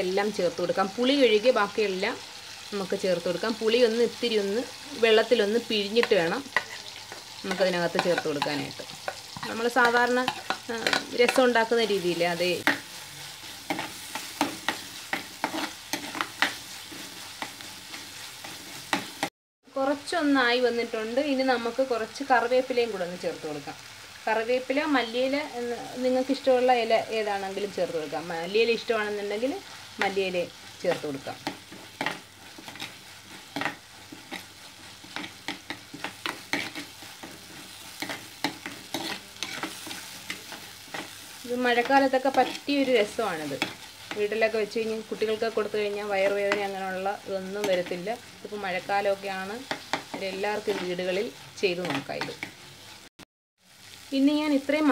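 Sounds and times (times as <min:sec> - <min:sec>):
food sizzling in oil: 0:00.0 - 0:54.9
spoon scraping a pot: 0:06.0 - 0:09.6, 0:12.6 - 0:19.2, 0:31.4 - 0:41.2
metal spoon scraping pot: 0:38.0 - 0:41.0.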